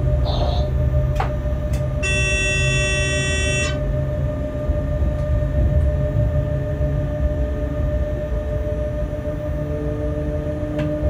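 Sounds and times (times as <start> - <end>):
freight train rumbling: 0.0 - 11.0
train horn blast: 2.0 - 4.0.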